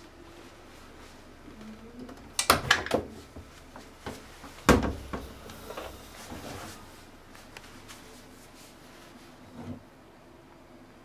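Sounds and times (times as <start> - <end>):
washing machine door clicks: 2.2 - 3.2, 4.7 - 5.4
towel rustling: 3.1 - 9.8.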